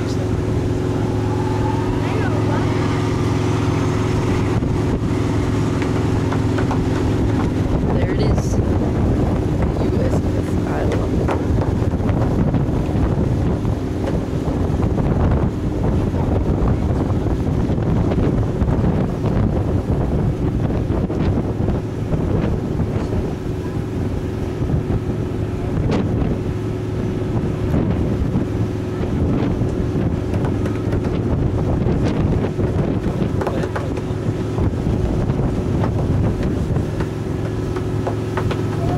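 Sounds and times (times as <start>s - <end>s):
boat engine drone: 0.0s - 38.9s
wind buffeting microphone: 0.0s - 38.9s.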